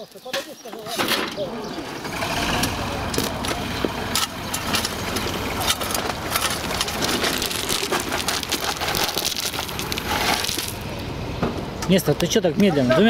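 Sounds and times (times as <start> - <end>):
tractor engine running: 1.2 - 13.0
shovel scraping through gravel: 4.8 - 10.8.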